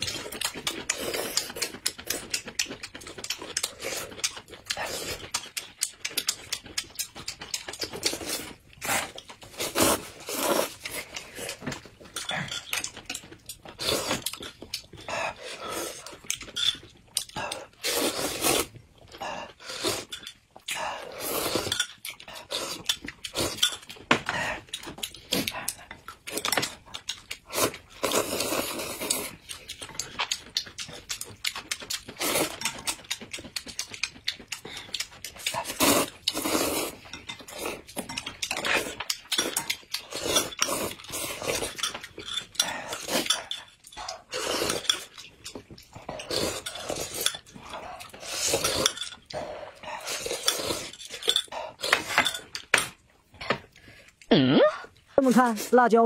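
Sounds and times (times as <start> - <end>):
noodles slurped and chewed: 0.0 - 56.0
chopsticks clicking against bowls: 0.1 - 8.2, 29.0 - 35.5.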